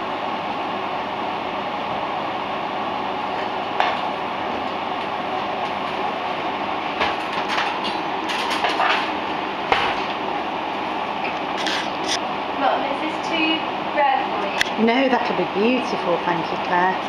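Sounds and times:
extractor fan running: 0.0 - 17.0
pans and utensils clinking: 7.0 - 10.0.

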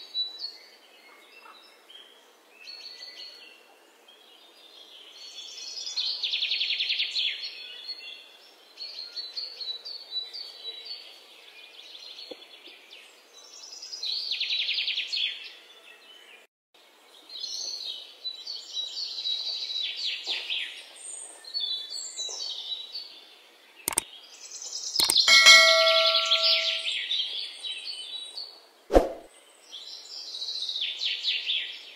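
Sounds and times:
ringing multi-tone ding: 25.0 - 26.9
sharp click: 25.0 - 26.9.

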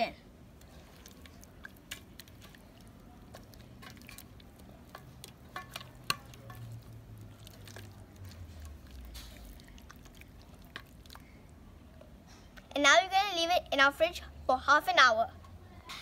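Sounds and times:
hands squishing raw chicken: 0.6 - 12.6.

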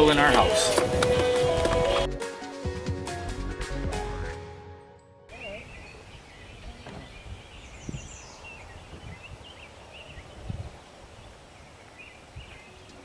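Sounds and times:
birds chirping and warbling: 5.3 - 13.0.

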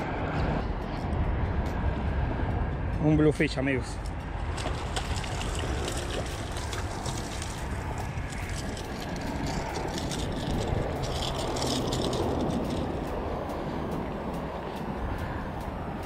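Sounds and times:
low background rumble: 0.0 - 16.0
fish thrashing and splashing: 4.4 - 12.9.

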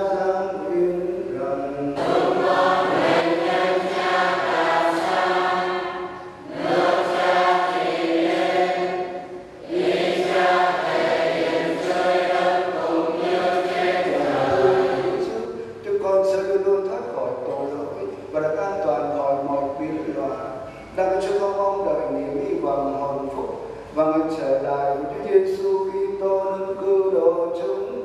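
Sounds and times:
church choir singing: 1.8 - 15.6.

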